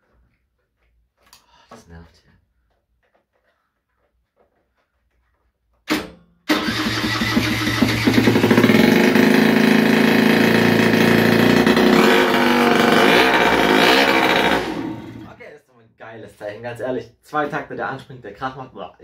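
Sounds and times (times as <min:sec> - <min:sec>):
scooter engine running: 0:06.5 - 0:15.3.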